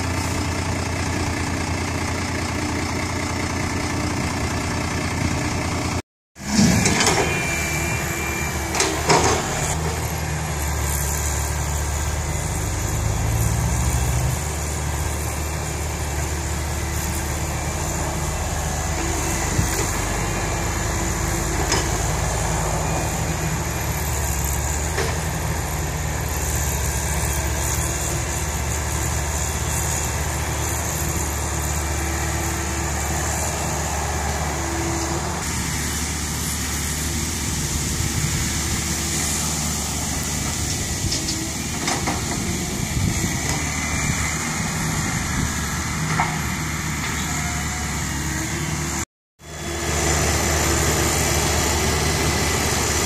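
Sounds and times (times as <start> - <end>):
diesel engines running: 0.0 - 53.0.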